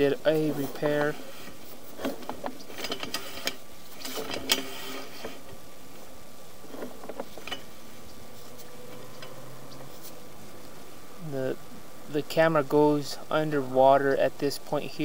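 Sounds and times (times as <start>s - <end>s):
steady hum: 0.0s - 15.0s
cable clicks and rattles: 0.4s - 10.2s.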